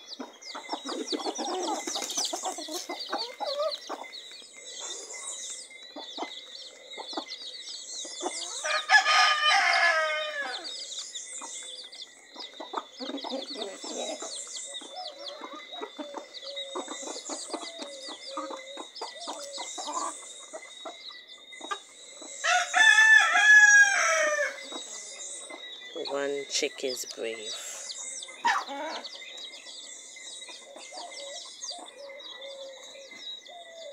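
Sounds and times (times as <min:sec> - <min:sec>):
chicks peeping: 0:00.0 - 0:33.9
hens clucking: 0:00.0 - 0:33.9
chicken drawn-out call: 0:08.4 - 0:10.7, 0:21.7 - 0:25.0.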